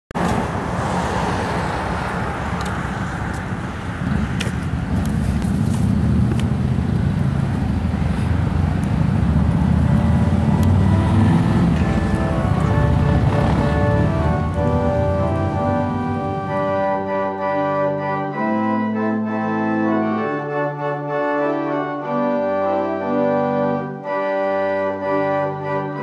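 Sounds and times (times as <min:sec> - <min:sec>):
low outdoor rumble: 0:01.6 - 0:16.7
soft music: 0:10.0 - 0:26.0.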